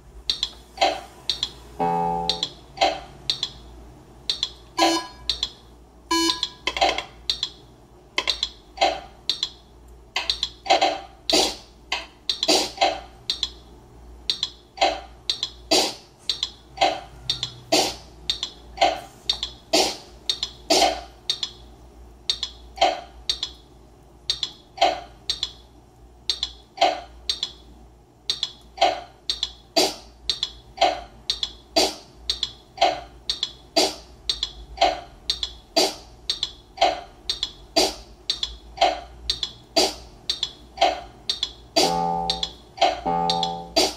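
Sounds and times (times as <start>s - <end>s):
drum machine looping beat: 0.0s - 2.7s, 37.1s - 43.9s.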